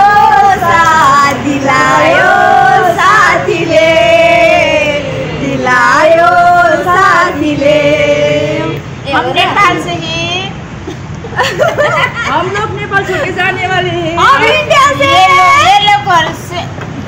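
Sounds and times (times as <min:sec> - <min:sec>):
women singing together: 0:00.0 - 0:10.0.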